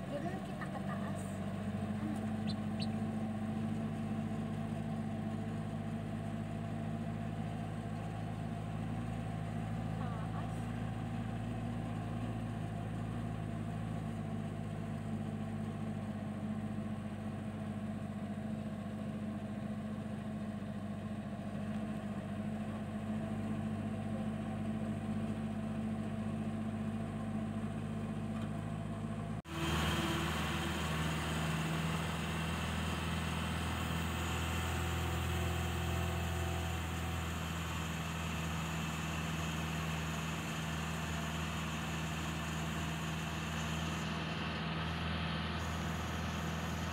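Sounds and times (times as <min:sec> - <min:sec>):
car engine running while driving: 0:00.0 - 0:46.9.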